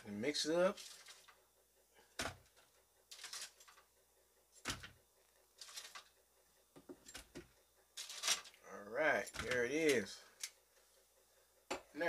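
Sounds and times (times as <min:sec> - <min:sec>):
tongs rustling and scraping: 0:00.6 - 0:01.4, 0:02.4 - 0:03.9, 0:05.6 - 0:06.2, 0:08.0 - 0:08.6.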